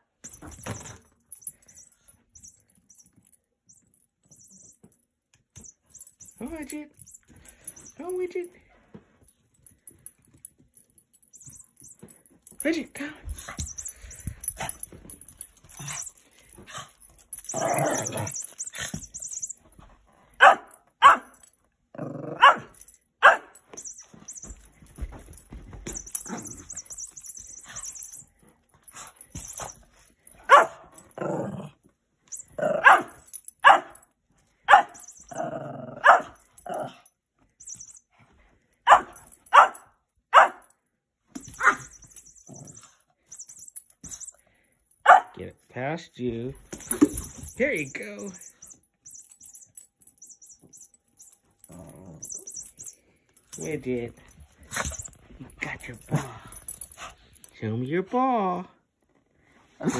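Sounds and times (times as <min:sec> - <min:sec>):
small dog barking: 0:20.4 - 0:21.4, 0:22.4 - 0:23.5, 0:30.5 - 0:30.8, 0:32.8 - 0:33.9, 0:34.7 - 0:35.0, 0:36.0 - 0:36.4, 0:38.9 - 0:40.6, 0:45.0 - 0:45.3.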